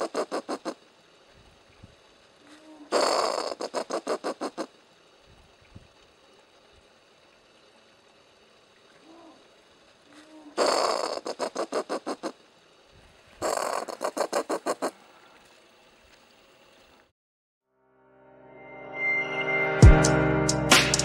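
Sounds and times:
possum calling with guttural chatter: 0.0s - 0.9s, 2.4s - 4.8s, 10.1s - 12.6s, 13.4s - 15.1s.

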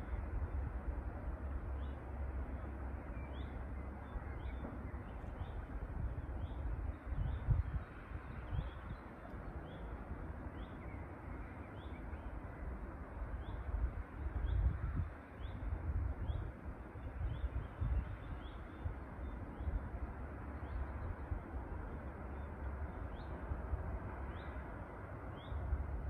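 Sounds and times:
wind rumble on microphone: 0.0s - 26.0s.

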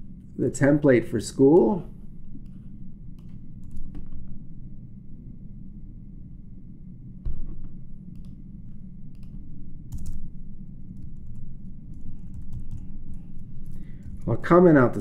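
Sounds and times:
steady low hum: 0.0s - 15.0s
keyboard typing: 9.2s - 10.2s, 11.0s - 14.2s.

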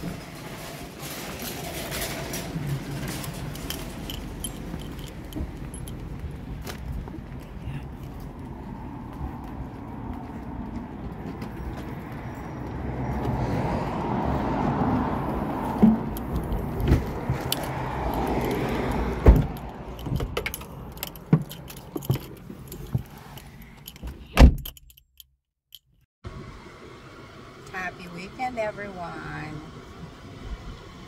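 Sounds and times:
outdoor rumble: 0.0s - 25.0s
keys jingling: 2.4s - 6.5s, 16.1s - 26.0s.

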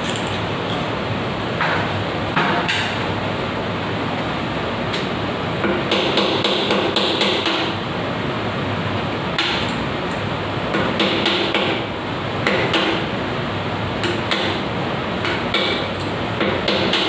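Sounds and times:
hammer striking a chisel: 5.6s - 7.7s, 10.7s - 11.8s, 15.2s - 17.0s.

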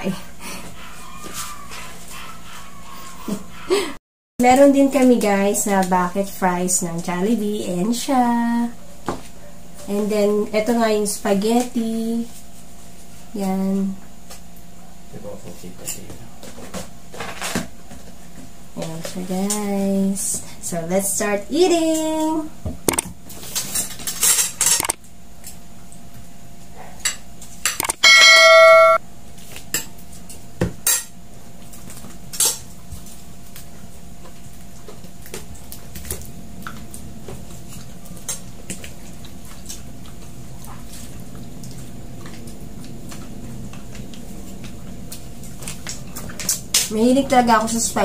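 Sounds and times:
steady electronic tone: 27.8s - 29.0s.

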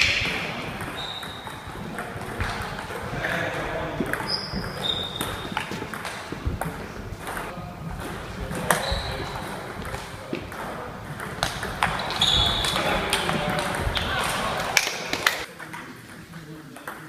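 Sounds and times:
short high squeaks: 0.9s - 1.7s, 4.2s - 5.6s, 12.0s - 12.8s.

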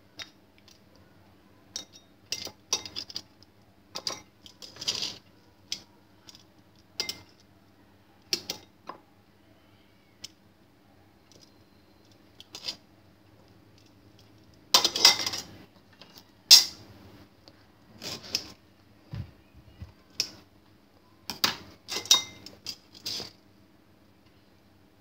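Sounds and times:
metal tongs clinking on ceramic bowl: 7.0s - 7.4s, 21.9s - 22.5s.

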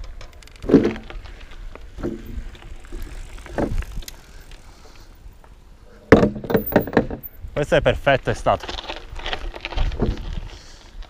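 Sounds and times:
bike knocks and thump: 0.0s - 1.2s, 1.9s - 4.0s, 6.1s - 7.3s
bike tyres rumbling on dirt: 0.0s - 11.0s
wind buffeting microphone: 1.2s - 4.4s.

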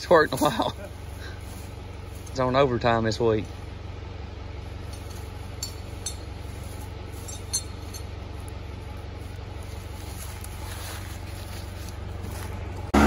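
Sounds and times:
diesel engine idling: 0.0s - 13.0s
light metal clinks: 4.8s - 6.5s, 7.1s - 8.6s.

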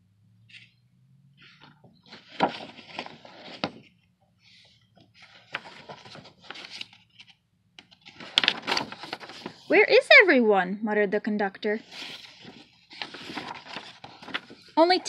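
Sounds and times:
book pages rustling: 1.4s - 9.7s, 11.8s - 15.0s.

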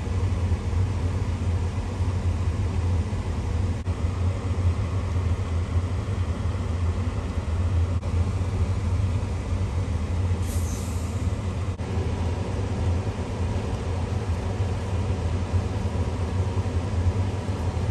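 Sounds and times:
brief high hiss: 10.4s - 11.3s
steady low hum: 11.3s - 17.9s.

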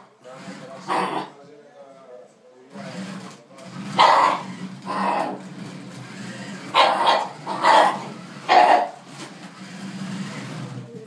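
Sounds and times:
dog barking: 4.0s - 5.4s, 6.7s - 9.0s.

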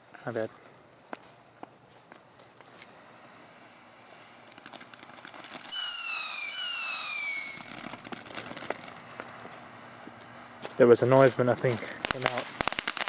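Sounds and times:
firework sparks crackling: 0.0s - 13.0s
firework whistles falling in pitch: 4.4s - 9.0s.

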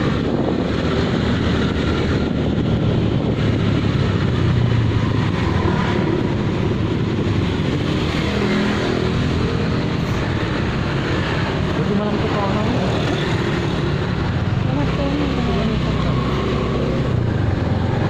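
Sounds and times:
wind on microphone: 0.0s - 11.8s.

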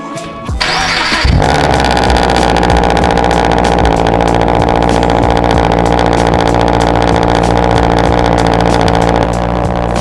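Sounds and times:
car engine starting and idling: 0.6s - 10.0s.

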